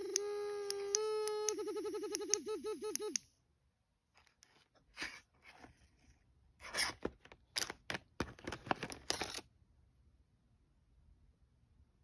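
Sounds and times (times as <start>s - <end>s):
plastic packaging clicks and scrapes: 6.6s - 9.5s.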